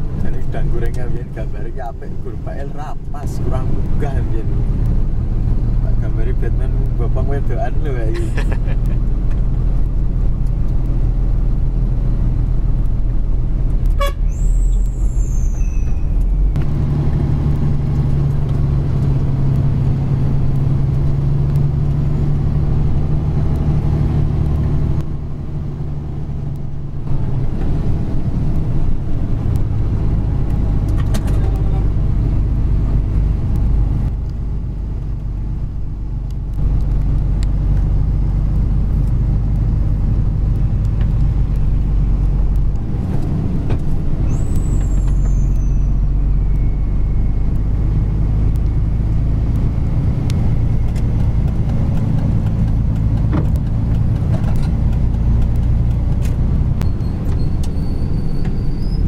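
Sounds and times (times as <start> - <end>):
truck diesel engine drone: 0.0 - 59.0.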